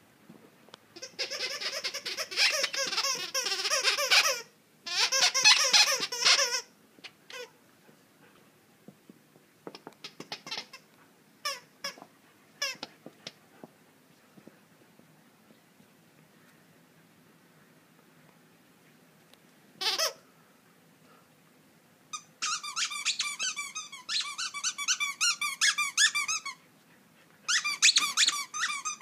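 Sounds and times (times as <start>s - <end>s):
squeaky toy squeaking: 1.0s - 6.7s, 7.3s - 7.6s, 10.0s - 10.8s, 11.4s - 12.0s, 12.6s - 12.9s, 19.8s - 20.2s, 22.1s - 26.6s, 27.5s - 29.0s.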